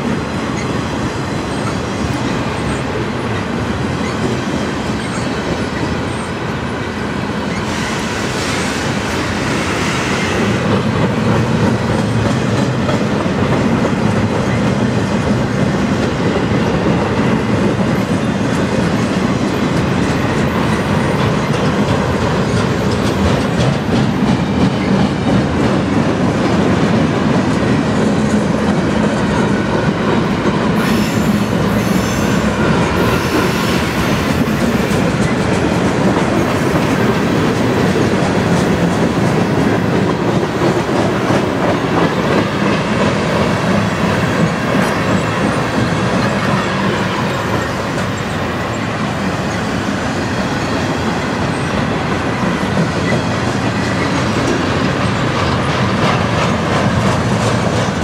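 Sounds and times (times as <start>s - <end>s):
freight train rolling past: 0.0s - 58.0s
steel wheels clicking over rail joints: 10.4s - 48.5s, 50.8s - 58.0s.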